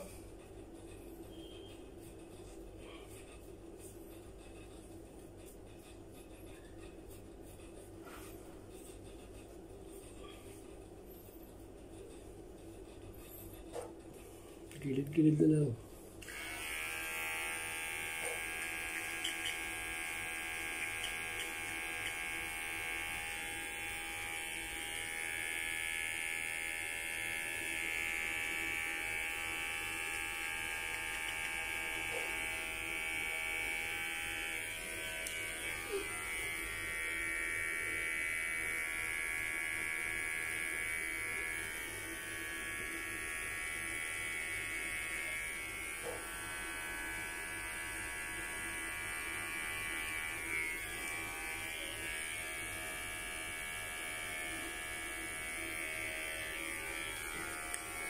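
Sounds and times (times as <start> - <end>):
electric hair clippers buzzing: 16.2 - 58.0.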